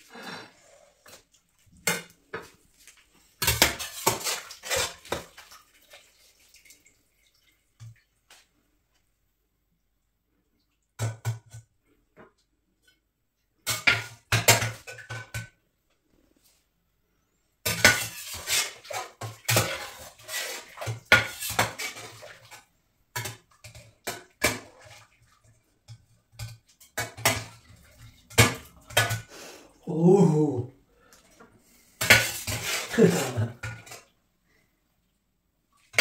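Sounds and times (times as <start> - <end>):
metal spoon scraping steel pot: 17.7 - 22.2, 32.0 - 33.2.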